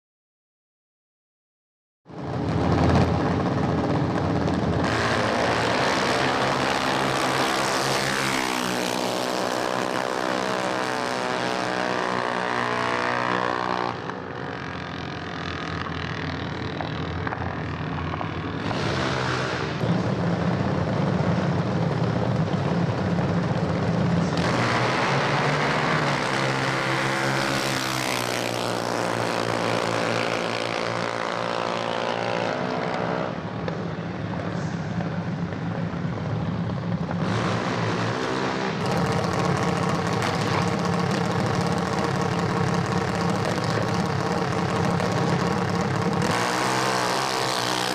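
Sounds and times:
dragster engine at high revs: 4.8 - 15.0, 18.6 - 20.0, 24.2 - 33.1, 37.2 - 47.9.

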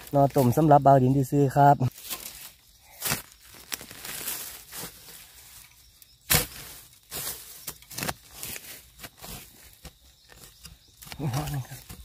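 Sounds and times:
leaf litter rustling: 1.9 - 10.5
dry bamboo snapping and cracking: 1.9 - 12.0.

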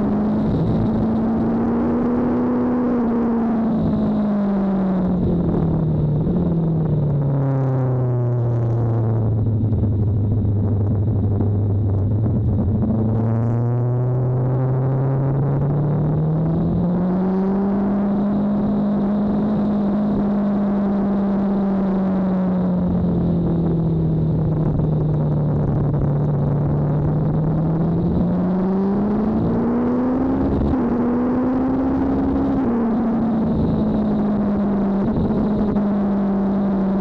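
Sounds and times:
motorcycle engine revving: 0.0 - 6.5, 11.4 - 37.0
wind rush: 8.9 - 17.9, 22.1 - 36.4.

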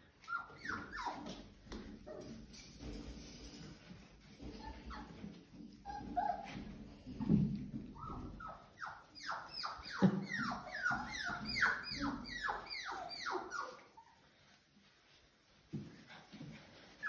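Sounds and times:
puppy whining yelps: 0.2 - 1.4, 5.8 - 6.7, 8.0 - 14.2.

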